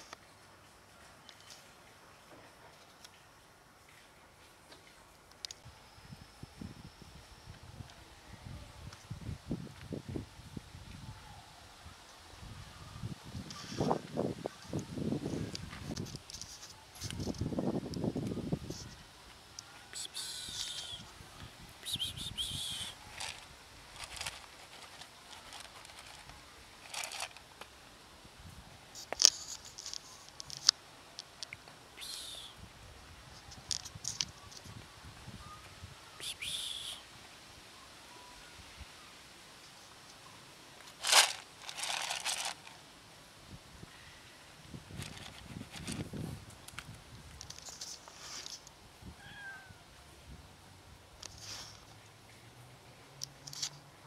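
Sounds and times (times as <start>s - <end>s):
short rustle: 22.3s - 27.4s, 40.8s - 42.8s, 44.9s - 48.7s, 51.2s - 52.0s
cat crunching dry kibble: 23.1s - 27.4s, 40.9s - 42.7s
light rustling: 40.8s - 42.8s
cat meowing: 49.2s - 49.8s.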